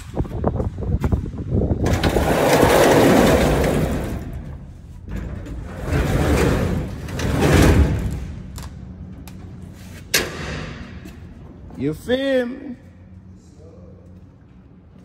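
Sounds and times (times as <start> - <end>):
garage door rollers rumbling: 0.1 - 9.2.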